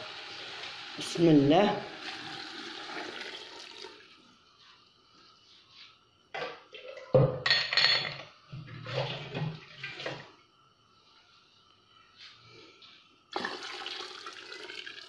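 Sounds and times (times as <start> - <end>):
water pouring and splashing: 8.6 - 10.3.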